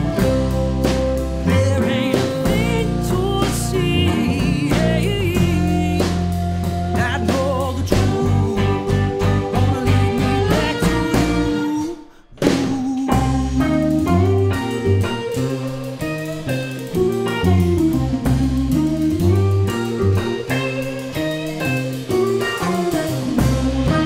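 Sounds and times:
drums played with rods: 0.0 - 11.8, 12.4 - 24.0
electric guitar: 0.0 - 24.0
man singing: 1.4 - 16.0.

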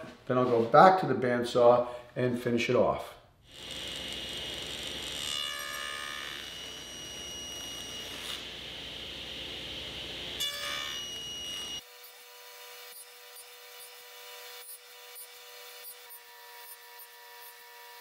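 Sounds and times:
table saw whining: 3.5 - 11.9.

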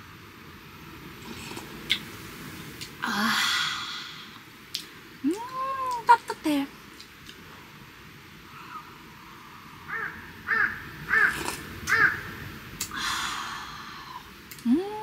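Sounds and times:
crow cawing: 9.9 - 12.3.

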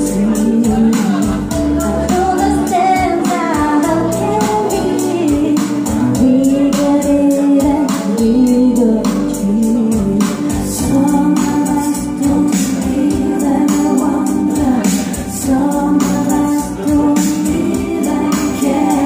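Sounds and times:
karaoke backing track with beat: 0.0 - 19.0
woman singing into microphone: 0.0 - 19.0.

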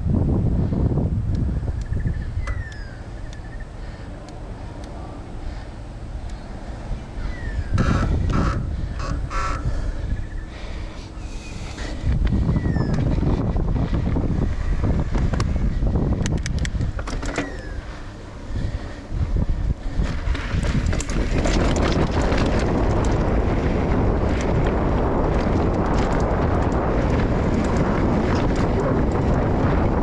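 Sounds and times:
wind buffeting microphone: 0.0 - 30.0
bike clicks and rattles: 1.3 - 30.0
tyres rolling over dirt: 19.9 - 30.0.

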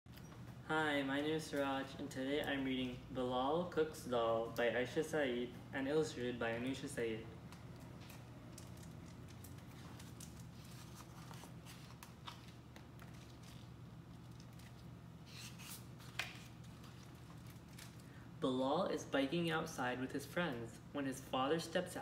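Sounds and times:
low room hum: 0.1 - 22.0
book pages turning: 7.6 - 18.0.

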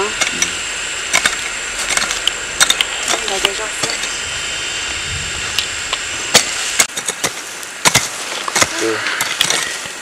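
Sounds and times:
high-pitched whine: 0.0 - 10.0
hoes chopping soil: 1.1 - 4.0, 6.3 - 10.0.

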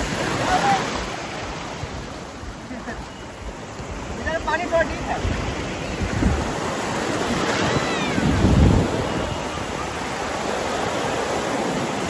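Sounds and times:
sea waves breaking: 0.0 - 12.0
wind buffeting microphone: 3.4 - 12.0
faint high cry: 7.5 - 8.4.

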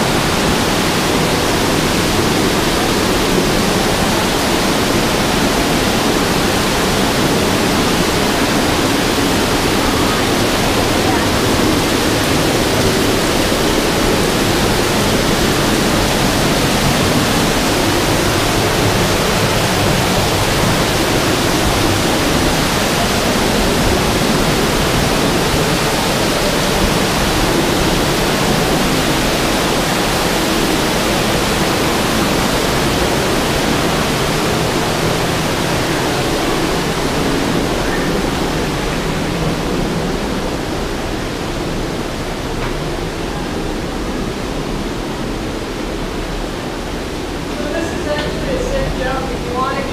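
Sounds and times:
waterfall rushing: 0.0 - 49.9.

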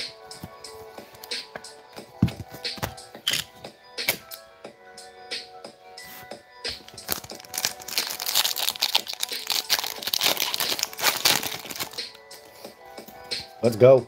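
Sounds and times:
wrapper tearing and crinkling: 7.0 - 12.2.

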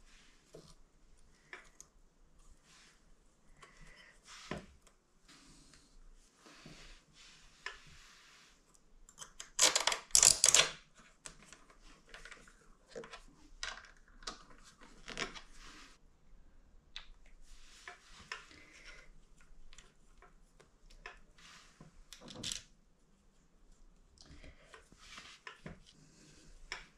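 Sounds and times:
small metal parts clicking and rattling: 9.2 - 10.7.

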